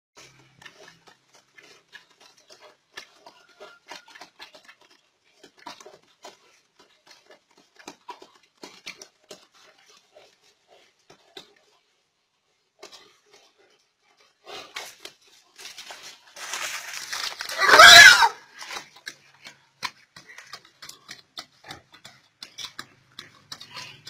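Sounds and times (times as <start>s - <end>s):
animal sounds: 0.2s - 11.9s, 12.8s - 24.0s
scuffling: 15.5s - 18.8s.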